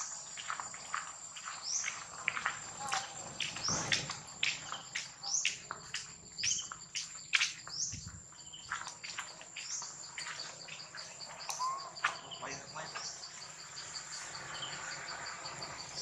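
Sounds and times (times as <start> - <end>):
high-pitched insect drone: 8.3 - 16.0.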